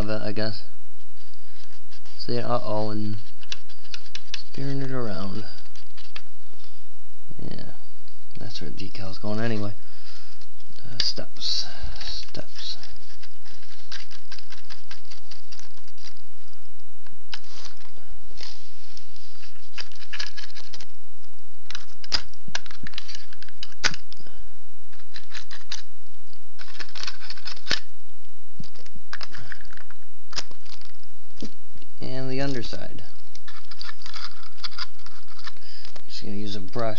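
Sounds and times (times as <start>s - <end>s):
scratchy rubbing of paintbrush: 0.0s - 6.8s, 9.2s - 16.3s, 17.3s - 20.9s, 24.9s - 25.9s, 26.6s - 27.9s, 28.7s - 36.9s.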